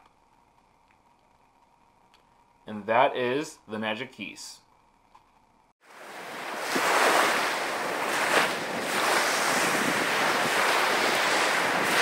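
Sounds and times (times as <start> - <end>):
waves breaking: 5.8 - 12.0.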